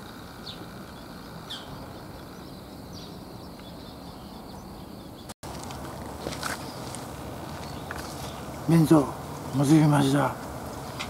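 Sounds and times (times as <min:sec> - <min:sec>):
bird chirps: 0:00.0 - 0:05.4, 0:06.4 - 0:08.6
insects droning: 0:00.0 - 0:11.0.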